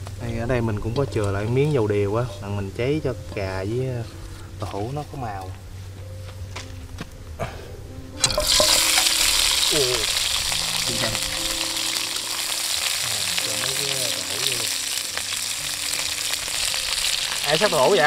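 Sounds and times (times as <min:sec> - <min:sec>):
food sizzling in hot oil: 0:08.2 - 0:18.0
frying hiss: 0:08.2 - 0:18.0.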